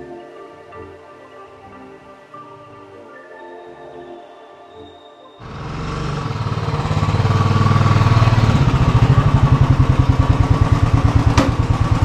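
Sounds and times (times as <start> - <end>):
motorcycle engine running: 5.4 - 12.0.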